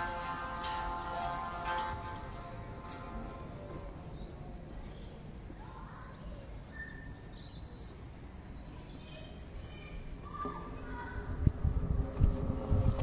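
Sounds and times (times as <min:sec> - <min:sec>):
low outdoor rumble: 0:00.0 - 0:06.1, 0:09.2 - 0:13.0
faint bird chirps: 0:04.0 - 0:11.3.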